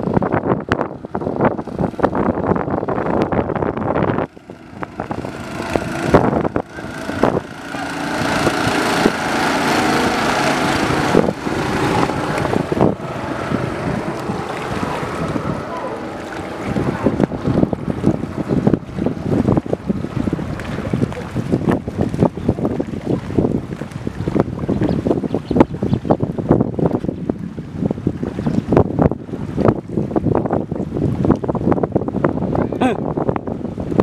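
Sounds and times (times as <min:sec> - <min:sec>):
motorboat engine passing: 0:00.0 - 0:34.0.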